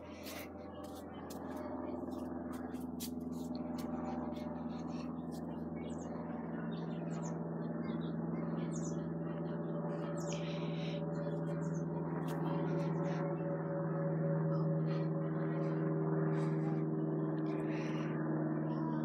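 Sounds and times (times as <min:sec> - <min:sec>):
airplane drone overhead: 0:00.0 - 0:19.0.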